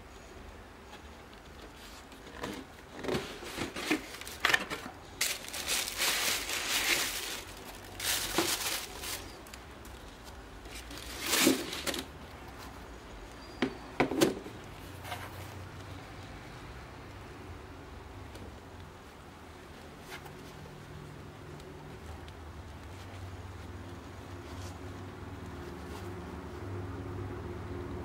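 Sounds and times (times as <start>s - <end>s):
tissue paper crinkling: 3.4s - 12.1s.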